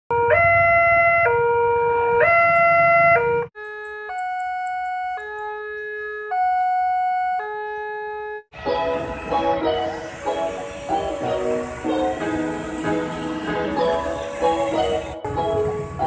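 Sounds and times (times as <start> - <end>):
level crossing two-tone alarm: 2.3 - 16.0
road traffic rumbling: 8.5 - 16.0.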